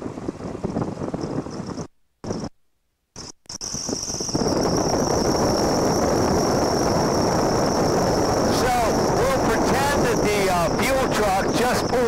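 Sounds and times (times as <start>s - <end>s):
light aircraft engine and wind: 0.0s - 2.5s, 3.6s - 12.0s
thin high whine: 3.2s - 12.0s.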